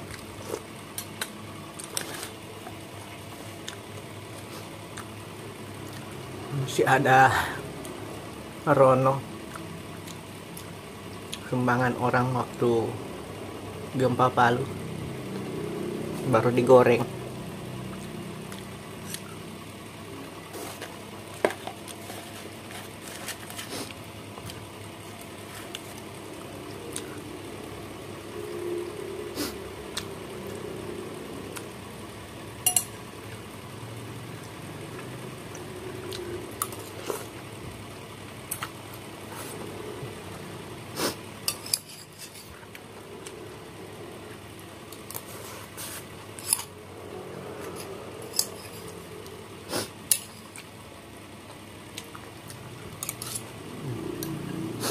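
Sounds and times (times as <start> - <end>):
spoon clinking against bowl: 32.7 - 32.9.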